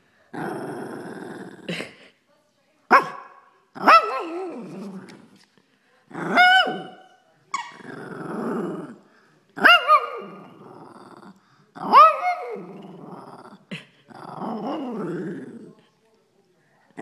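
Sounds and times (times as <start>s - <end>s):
dog growling: 0.3s - 1.9s, 4.2s - 5.4s, 7.6s - 15.8s
dog barking high-pitched: 2.9s - 4.4s, 9.6s - 10.3s.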